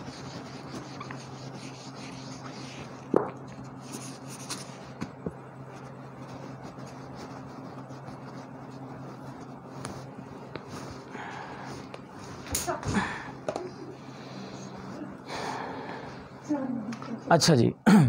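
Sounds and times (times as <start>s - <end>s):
eraser rubbing whiteboard: 0.0s - 5.0s, 5.6s - 11.1s
steady low hum: 0.0s - 18.0s.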